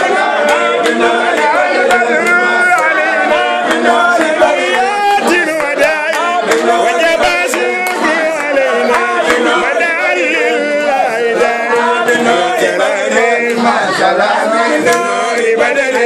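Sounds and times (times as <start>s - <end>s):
hand claps: 0.0s - 10.1s, 11.4s - 13.7s, 14.8s - 16.0s
men singing together: 0.0s - 16.0s.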